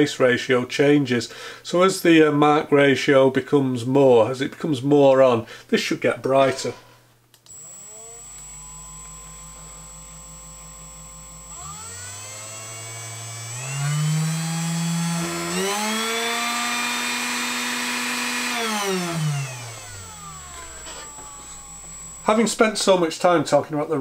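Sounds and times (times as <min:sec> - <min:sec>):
spindle motor whine: 0:07.5 - 0:23.4.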